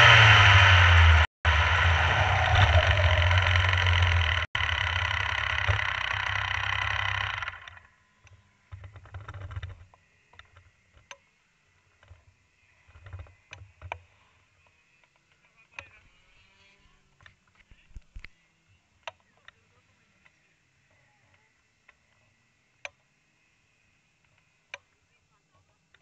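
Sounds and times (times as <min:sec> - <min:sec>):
kart engine running: 0:00.0 - 0:08.0.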